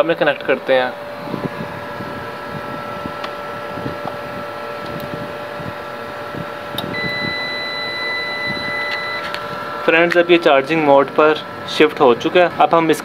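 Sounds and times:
electrical hum and whine: 0.0s - 13.0s
high steady tone: 0.1s - 12.6s.

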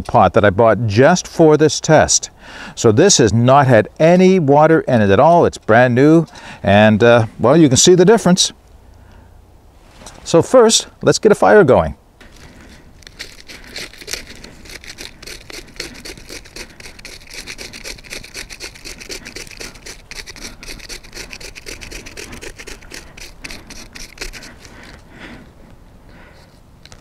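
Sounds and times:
knife scraping birch bark: 12.2s - 27.0s.

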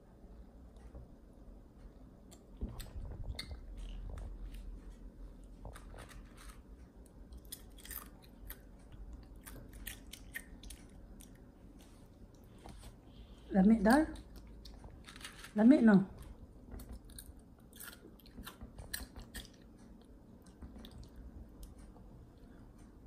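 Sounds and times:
child chewing crunchy food: 1.8s - 13.4s, 14.2s - 22.8s.

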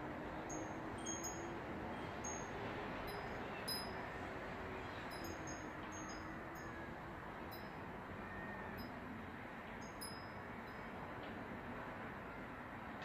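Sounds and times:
wind chime tinkling: 0.5s - 1.5s, 2.2s - 2.5s, 3.1s - 4.0s, 5.1s - 6.8s, 7.5s - 7.8s, 9.8s - 11.0s.

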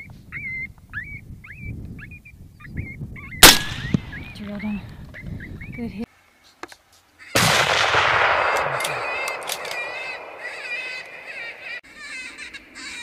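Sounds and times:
rifle shot echoing: 3.4s - 4.2s, 7.4s - 11.8s
high-pitched animal calls: 8.8s - 13.0s.

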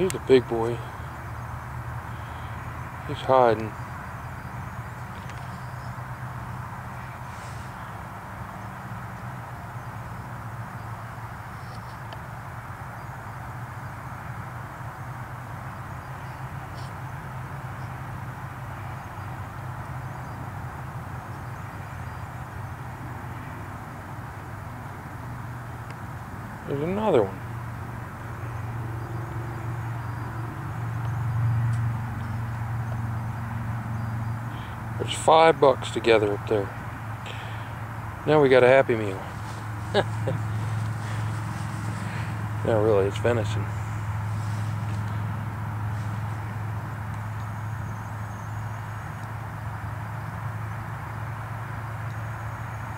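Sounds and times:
constant low hum: 0.0s - 52.9s
low mechanical drone: 0.0s - 52.9s
faint high ticks: 5.0s - 5.6s, 31.0s - 32.7s, 47.1s - 47.6s, 52.0s - 52.2s
even hiss: 7.1s - 8.8s.

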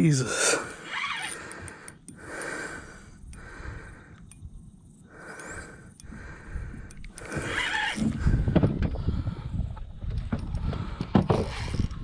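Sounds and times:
man breathing hard: 0.2s - 4.5s, 5.1s - 12.0s
fishing reel winding: 0.8s - 3.6s.

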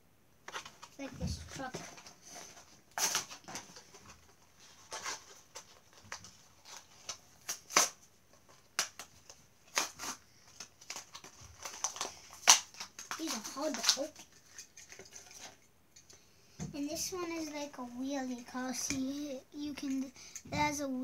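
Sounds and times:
plastic packaging crinkling: 0.5s - 15.7s.

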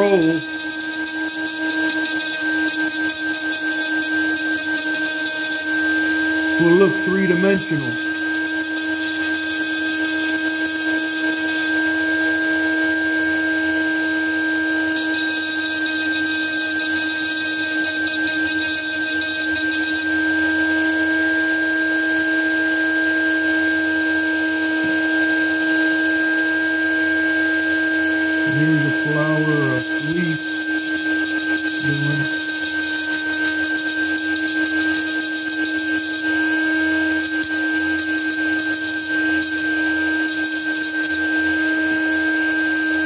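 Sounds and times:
rotary tool whining: 0.0s - 9.8s.

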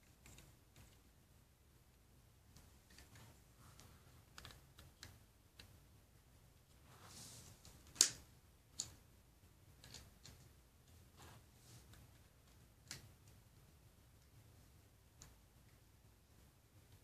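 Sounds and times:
plastic pieces clicking together: 4.3s - 5.7s, 9.8s - 10.4s
rustle: 6.8s - 8.2s.

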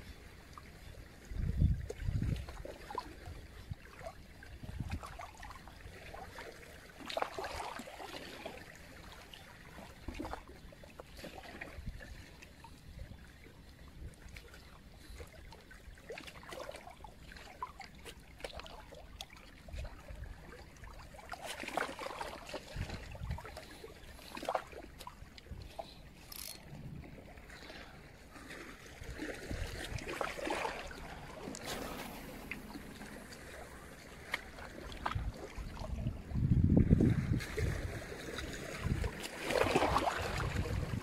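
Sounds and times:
small waves lapping over rocks: 0.1s - 41.0s
wind rumble on microphone: 1.1s - 3.8s, 4.5s - 5.2s, 22.6s - 23.8s, 31.0s - 39.3s, 39.9s - 41.0s.

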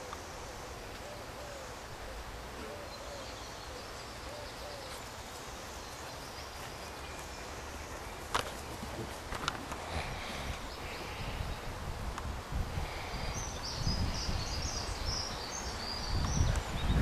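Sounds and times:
bird hooting softly: 0.0s - 5.0s
faint outdoor hiss: 0.0s - 17.0s.

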